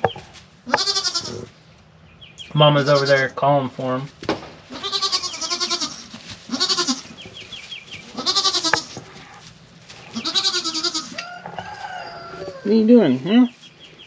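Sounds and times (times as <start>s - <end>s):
goat bleating: 0.6s - 1.6s, 2.7s - 3.3s, 4.7s - 7.2s, 8.0s - 9.2s, 10.1s - 12.7s.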